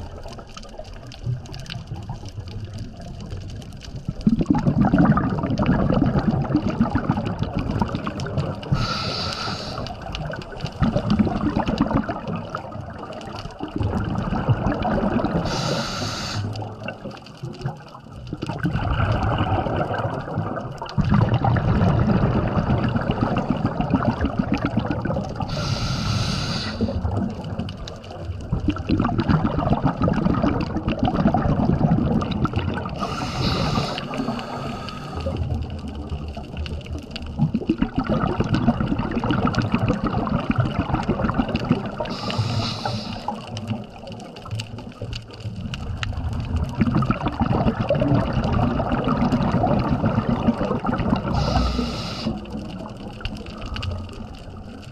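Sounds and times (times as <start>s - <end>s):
bubbling exhale: 4.2s - 17.1s, 17.7s - 27.7s, 28.6s - 35.9s, 37.4s - 44.3s, 46.1s - 54.9s
hissing regulator inhales: 8.7s - 10.0s, 15.4s - 16.6s, 25.5s - 27.0s, 33.0s - 35.4s, 42.1s - 43.4s, 51.3s - 52.5s.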